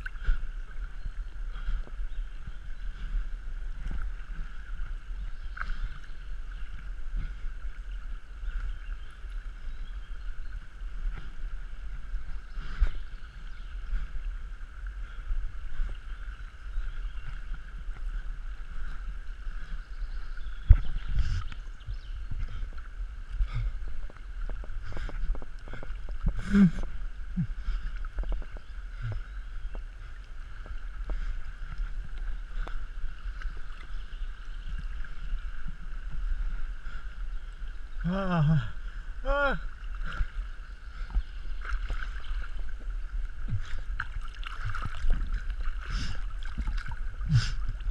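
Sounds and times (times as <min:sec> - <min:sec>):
river water gurgling: 0:00.0 - 0:47.9
knocks and splashes: 0:43.4 - 0:47.9.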